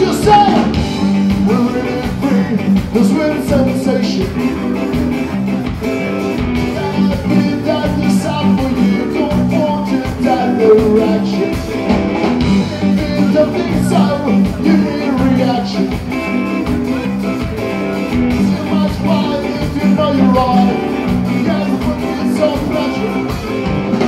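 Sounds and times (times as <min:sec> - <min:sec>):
live ska band playing: 0:00.0 - 0:24.0.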